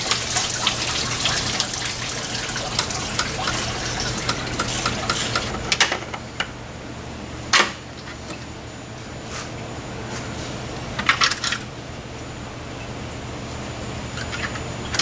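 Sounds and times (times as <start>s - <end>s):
coolant pouring and splashing: 0.0s - 5.7s.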